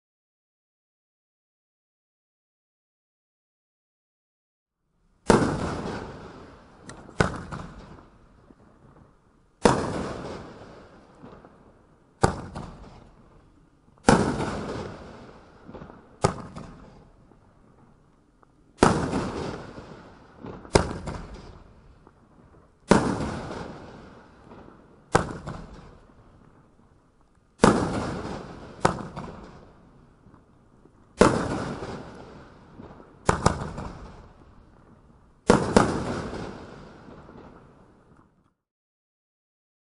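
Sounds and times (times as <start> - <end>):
firework bangs echoing: 5.2 - 18.0, 18.8 - 26.8, 27.6 - 38.1.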